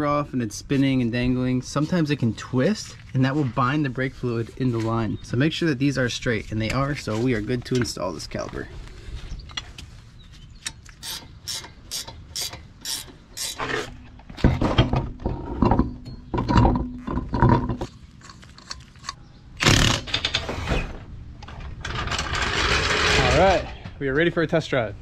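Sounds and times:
ratchet wrench clicking: 10.7s - 13.6s.

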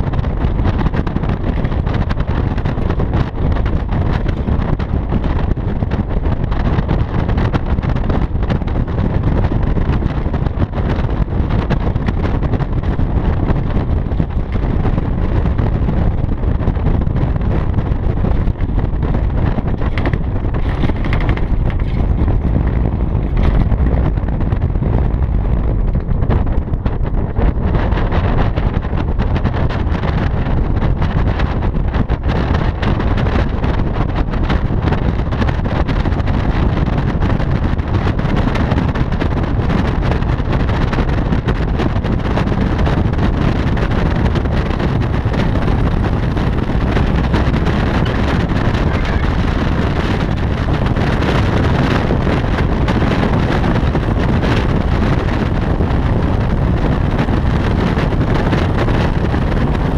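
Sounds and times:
wind rumble on microphone: 0.0s - 59.9s
light aircraft engine overhead: 48.4s - 49.7s.

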